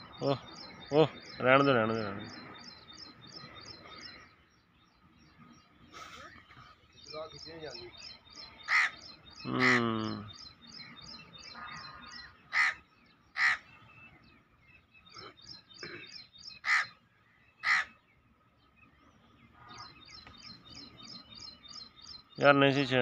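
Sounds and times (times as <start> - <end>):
small bird chirping: 0.0 - 23.0
crows cawing: 8.6 - 10.2, 11.5 - 13.8, 16.6 - 17.0, 17.6 - 18.0, 19.5 - 20.0.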